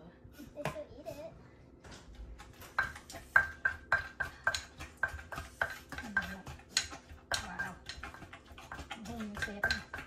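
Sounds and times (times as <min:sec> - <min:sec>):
pestle pounding in clay mortar: 0:02.4 - 0:10.0.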